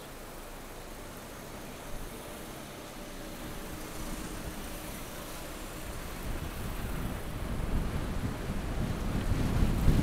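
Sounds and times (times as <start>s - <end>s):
wind buffeting microphone: 3.4s - 10.0s.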